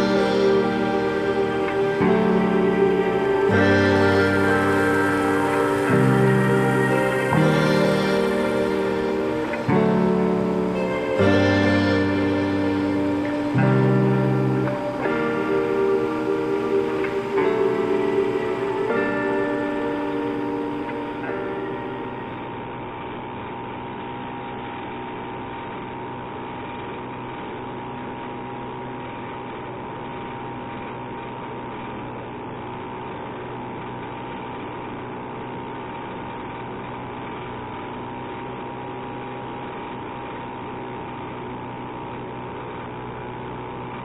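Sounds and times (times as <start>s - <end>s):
snowmobile engine droning: 0.0s - 22.5s.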